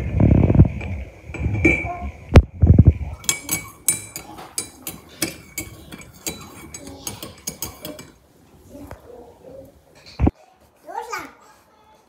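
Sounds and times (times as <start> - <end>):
spoon clinking against mug: 3.2 - 8.2.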